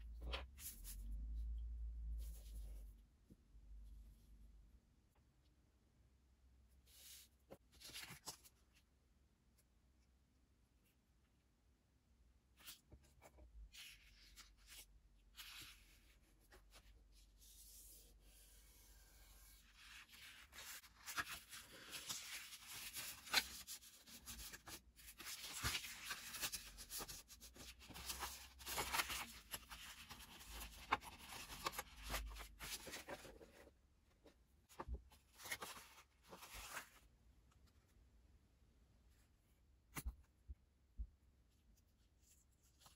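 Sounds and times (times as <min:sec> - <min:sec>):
paper rustling and folding: 0:07.0 - 0:08.8, 0:12.6 - 0:37.1.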